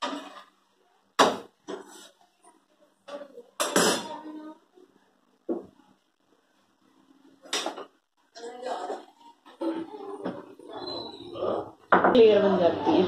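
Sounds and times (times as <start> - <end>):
kitchen utensils knocking: 3.6 - 4.1.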